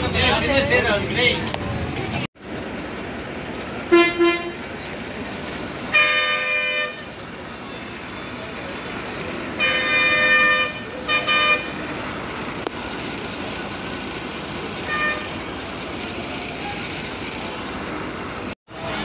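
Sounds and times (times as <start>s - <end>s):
traffic noise: 0.0s - 19.0s
vehicle horns honking: 3.9s - 4.7s, 5.9s - 11.9s, 14.8s - 15.5s.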